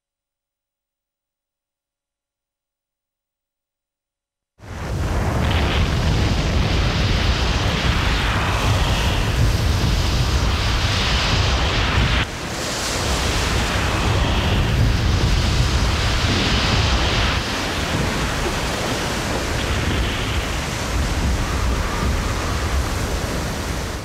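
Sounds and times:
rushing churning water: 4.6 - 24.0.

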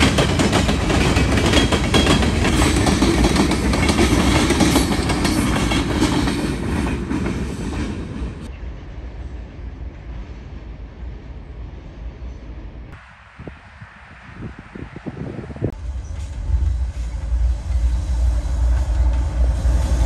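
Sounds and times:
train wheels clattering over rails: 0.0 - 8.5.

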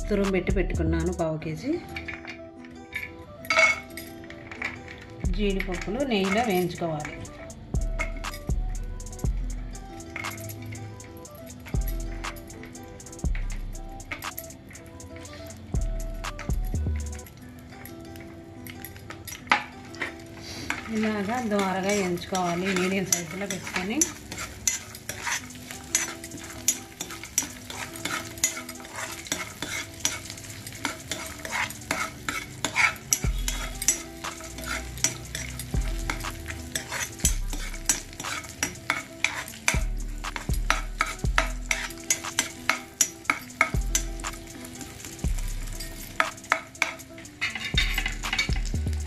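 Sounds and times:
nuts sizzling in oil: 9.2 - 49.0
spatula scraping a pan: 19.3 - 48.5.

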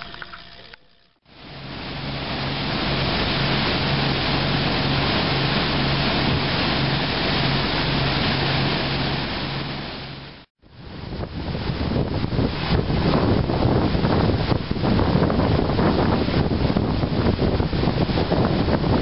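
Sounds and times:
boat engine droning: 1.3 - 10.5
rushing hiss of boat wake: 1.3 - 19.0
wind over microphone: 10.6 - 19.0.

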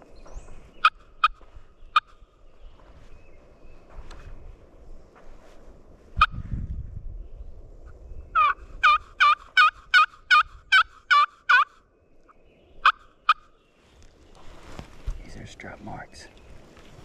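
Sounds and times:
turkey call yelps: 8.4 - 11.8, 12.8 - 13.5.

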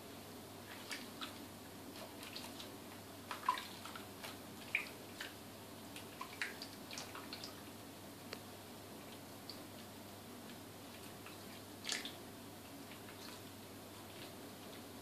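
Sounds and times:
water splashing and dripping: 3.3 - 7.6, 11.3 - 12.2.

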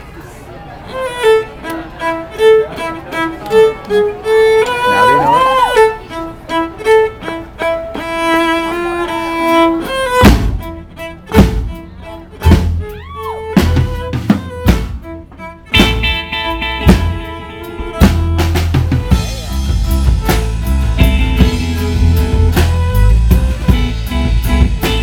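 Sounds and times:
fiddle melody: 0.5 - 25.0
drum kit hits: 13.6 - 15.0, 15.7 - 25.0.

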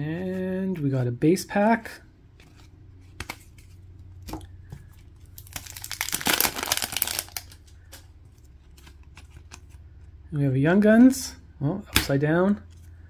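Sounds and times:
foil wrapper crinkling and tearing: 5.3 - 7.9.

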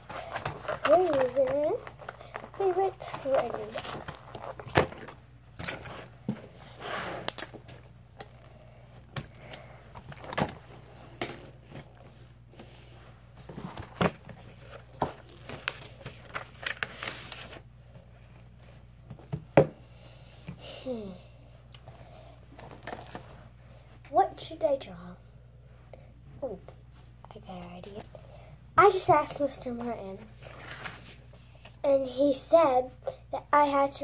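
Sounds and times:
paper rustling: 0.0 - 7.8, 13.4 - 18.8, 29.7 - 31.2.

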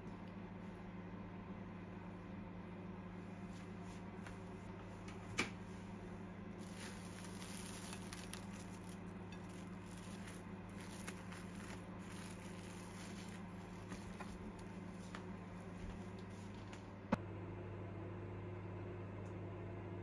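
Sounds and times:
steady low hum: 0.0 - 20.0
cling wrap crinkling: 6.6 - 15.3.

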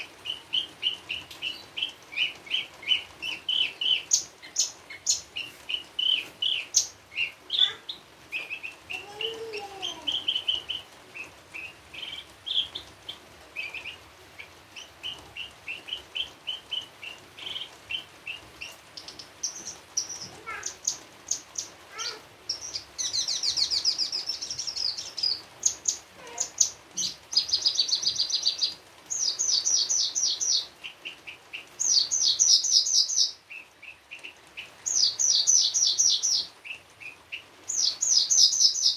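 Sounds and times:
bird singing with trills: 22.5 - 30.7, 31.6 - 34.2, 34.9 - 38.9.

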